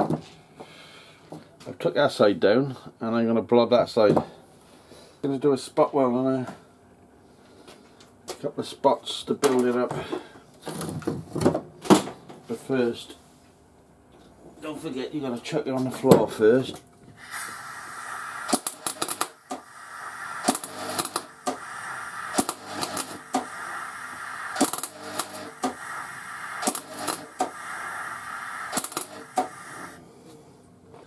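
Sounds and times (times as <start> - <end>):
welding arc crackling and hissing: 17.2 - 30.0.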